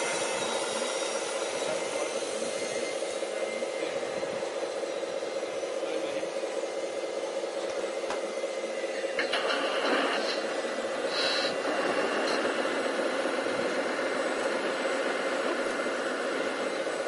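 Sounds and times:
brief high squeal: 0.0 - 3.8
model excavator motors whining: 0.0 - 17.0.

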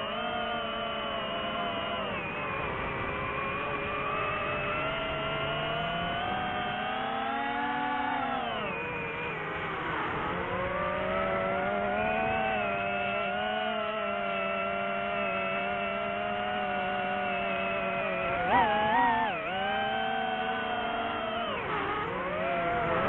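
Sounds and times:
drone propeller motors whining: 0.0 - 23.0.

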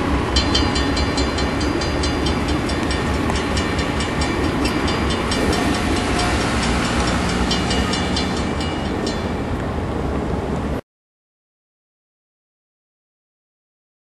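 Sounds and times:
crossing warning bell ringing: 0.0 - 10.3
freight train rumble: 0.0 - 10.8.

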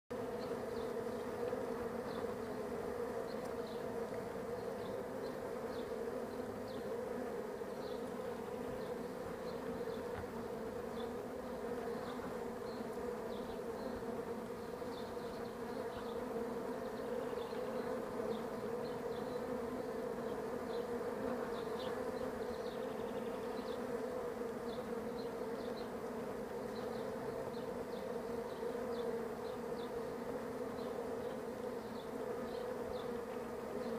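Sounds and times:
bees humming: 0.1 - 33.9
faint high ticks: 3.3 - 4.3.

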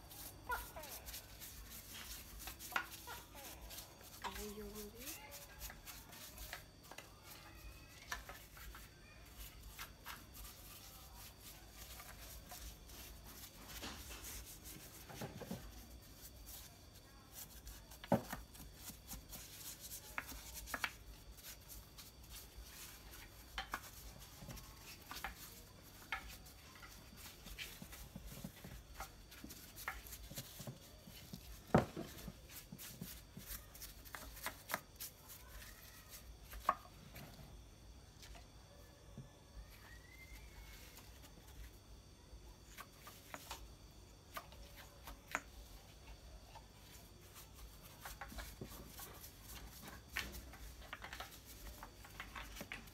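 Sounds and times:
brush rubbing on wood: 0.0 - 36.8
brush tapping wood: 0.0 - 37.3, 42.8 - 52.9.

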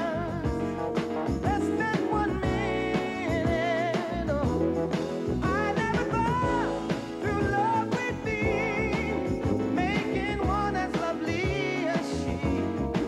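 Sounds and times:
song with band and vocals: 0.0 - 13.0.

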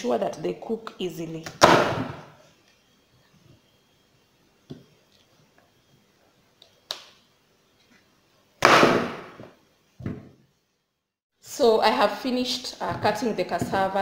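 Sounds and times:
knife chopping on plastic board: 12.8 - 14.0.

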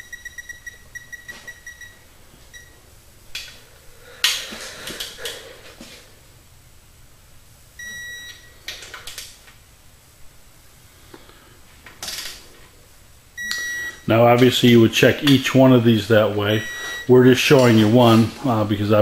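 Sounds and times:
torque wrench beeping: 0.0 - 2.0
long steady beep: 0.0 - 2.8, 7.8 - 8.5, 13.4 - 14.2, 16.5 - 17.2.

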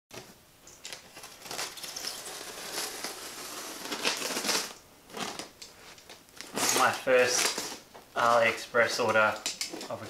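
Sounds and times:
knife cutting packing tape: 0.9 - 5.5.

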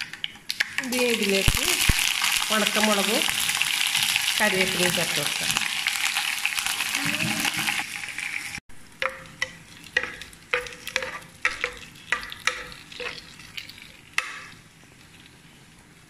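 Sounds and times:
oil sizzling in a frying pan: 0.0 - 14.7
spoon knocking metal pot: 9.0 - 13.2.

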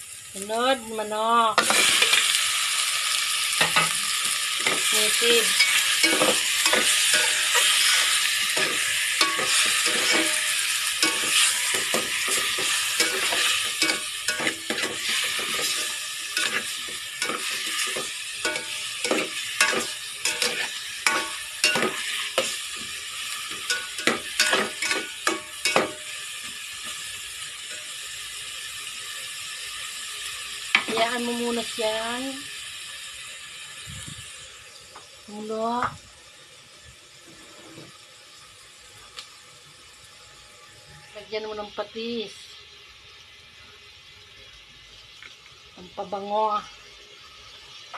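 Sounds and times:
chicken sizzling in hot oil: 0.0 - 47.9
utensil scraping metal pot: 4.6 - 22.9.

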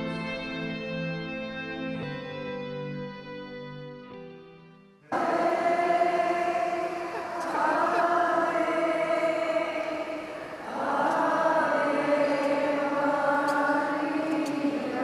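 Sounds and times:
choir singing a hymn: 5.1 - 15.0.

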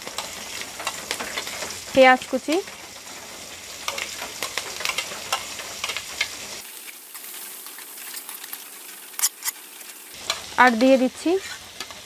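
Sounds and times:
food sizzling in hot oil: 0.0 - 12.0
metal spatula clicking and scraping: 0.1 - 1.8, 3.8 - 6.4, 7.7 - 9.6, 10.2 - 12.0.

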